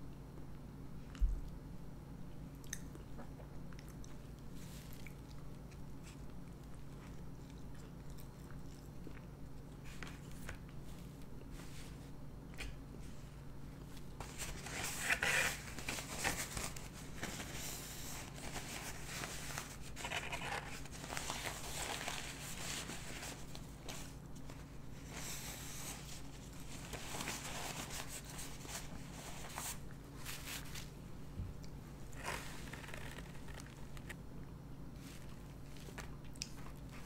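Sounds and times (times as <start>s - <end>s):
paper napkin rustling and crinkling: 9.8s - 31.1s, 32.0s - 34.2s, 34.9s - 37.0s.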